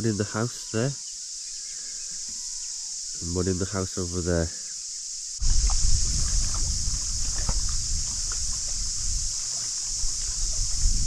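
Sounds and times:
steady high hiss: 0.0 - 11.0
wind buffeting the microphone: 5.4 - 11.0.

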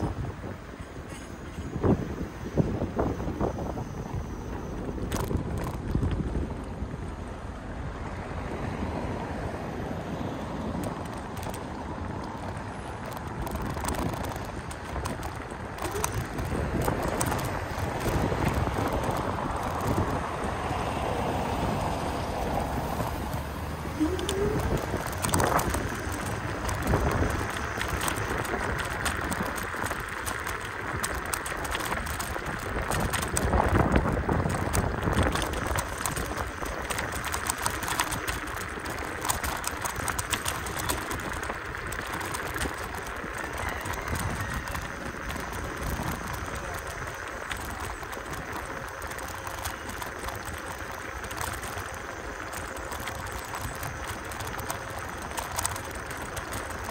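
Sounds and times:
scooter tyres rumbling on cobblestones: 0.0 - 56.9.

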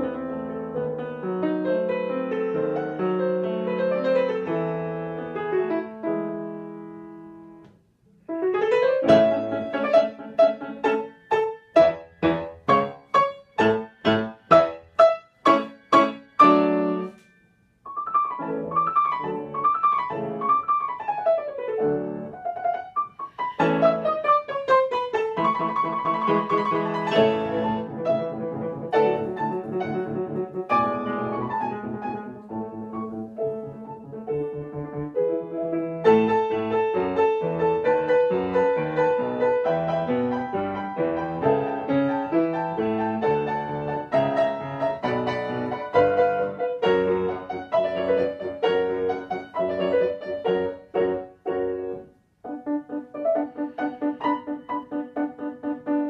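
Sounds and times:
two pianos playing: 0.0 - 56.0.

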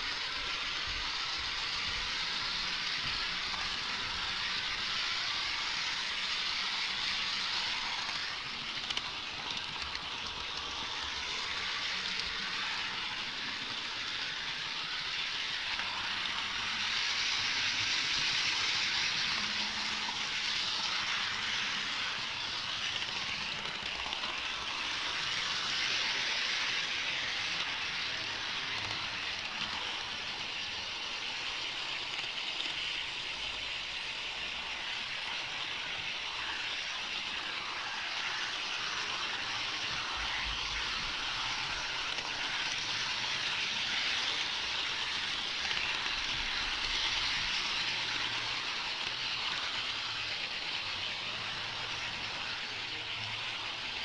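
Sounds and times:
model train wheels rattling: 0.0 - 54.0.

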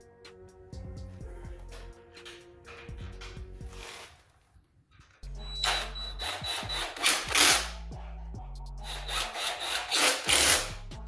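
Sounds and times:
cordless drill driving bolts: 5.4 - 7.7.

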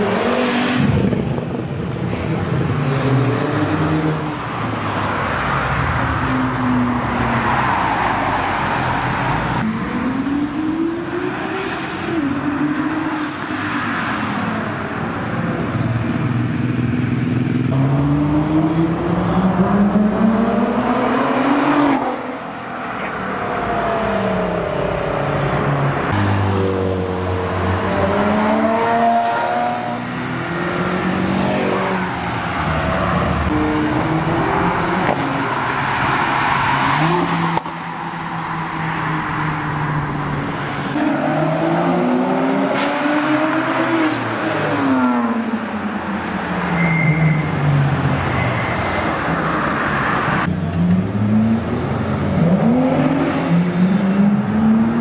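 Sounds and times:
car engines revving past: 17.4 - 55.0.

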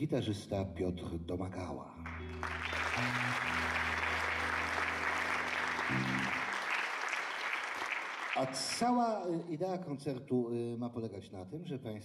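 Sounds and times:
band holding low notes: 2.0 - 6.7
audience applauding: 2.0 - 9.1.

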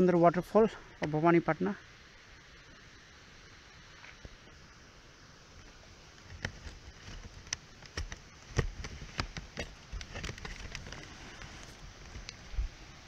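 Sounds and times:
faint outdoor hiss: 0.0 - 13.0
camera handling clicks and thumps: 6.2 - 12.4.

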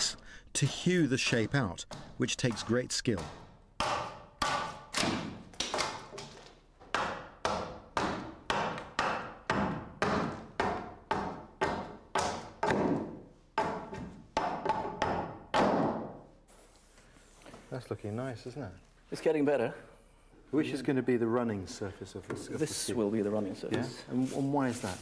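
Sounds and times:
axe chopping wood: 1.9 - 6.0.

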